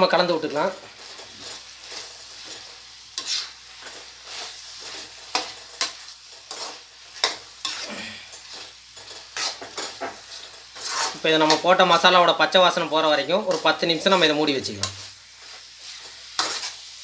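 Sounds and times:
frying sizzle: 0:00.0 - 0:17.0
metal spoon scraping a steel pan: 0:03.2 - 0:07.9, 0:08.5 - 0:11.6, 0:15.8 - 0:16.8.

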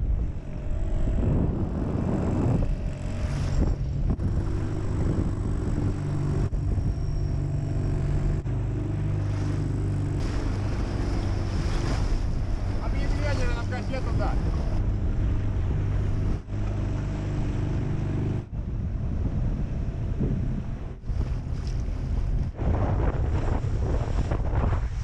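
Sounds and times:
wind on microphone: 0:00.0 - 0:08.4, 0:10.2 - 0:25.0
motorboat engine drone: 0:00.0 - 0:25.0
water rushing past hull: 0:09.1 - 0:19.1.

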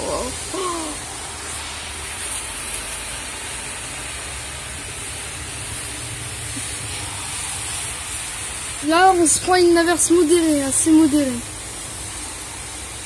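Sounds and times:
rain shower falling: 0:00.0 - 0:13.0.

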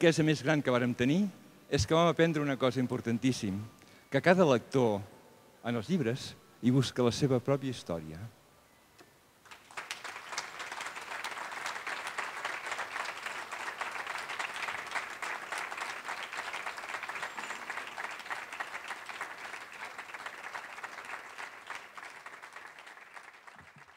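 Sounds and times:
audience applauding: 0:09.5 - 0:23.9.

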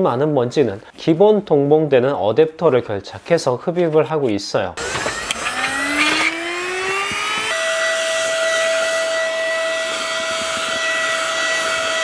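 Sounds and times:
handheld vacuum motor whine: 0:04.8 - 0:12.0.

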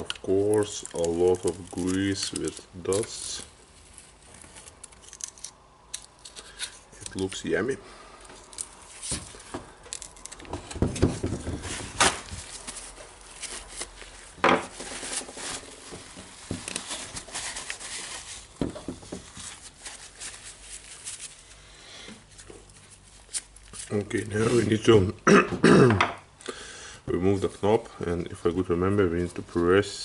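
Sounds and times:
paper towel rustling and crinkling: 0:10.6 - 0:21.6, 0:22.2 - 0:24.9.

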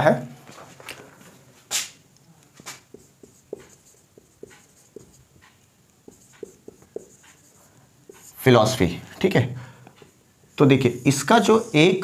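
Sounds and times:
marker squeaking on whiteboard: 0:02.7 - 0:08.5.

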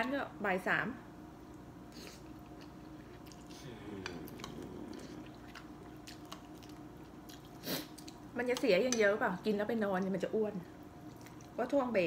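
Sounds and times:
faint steady hum: 0:00.0 - 0:12.0
person chewing: 0:01.5 - 0:08.3, 0:11.0 - 0:11.6
low murmur: 0:03.5 - 0:05.6.

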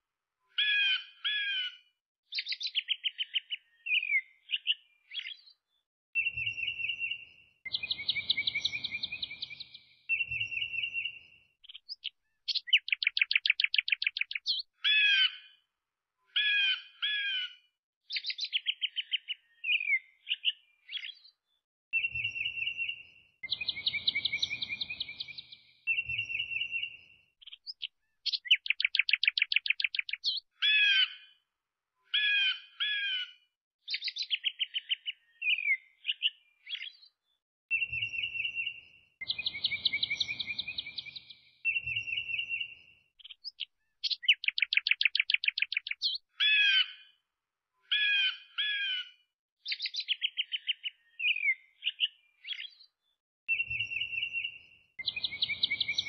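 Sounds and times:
songbird trilling and chirping: 0:02.3 - 0:05.6, 0:06.2 - 0:15.4, 0:18.1 - 0:21.3, 0:22.0 - 0:31.2, 0:33.9 - 0:37.1, 0:37.7 - 0:47.0, 0:49.6 - 0:52.9, 0:53.5 - 0:56.0.

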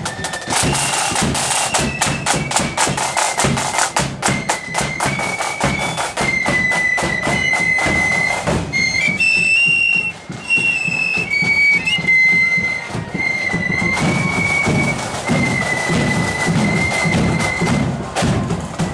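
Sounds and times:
drum beats: 0:00.0 - 0:18.9
flute band playing: 0:00.0 - 0:18.9.

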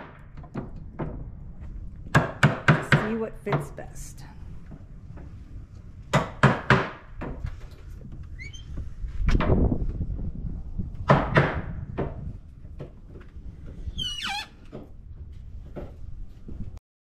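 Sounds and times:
short falling squeak: 0:08.4 - 0:08.7, 0:14.0 - 0:14.6.

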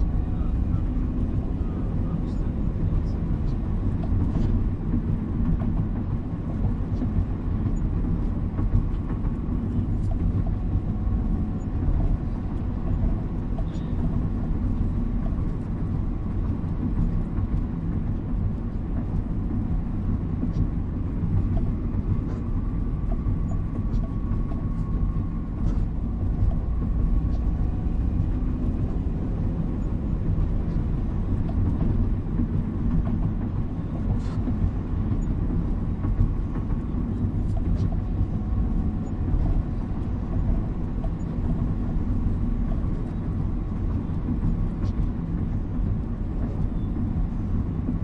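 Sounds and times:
car driving on wet street: 0:00.0 - 0:48.0.

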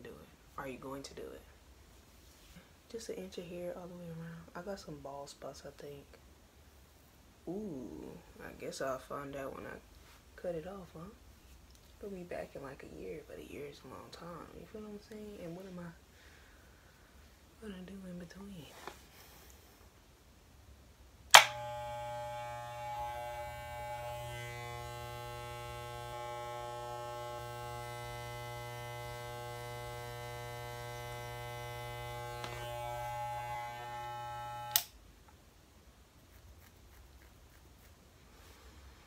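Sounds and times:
clipper switch click: 0:21.3 - 0:21.6
hair clippers buzzing: 0:21.3 - 0:35.0.

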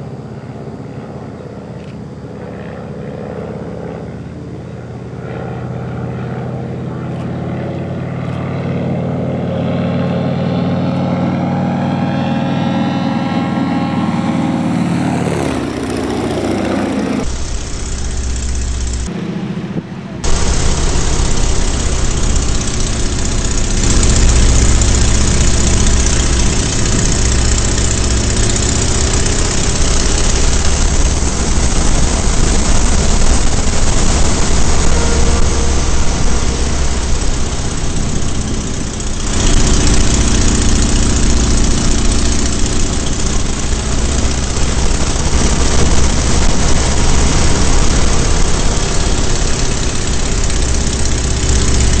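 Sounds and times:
propeller plane engine: 0:00.0 - 0:52.0
rushing air noise: 0:14.1 - 0:52.0.

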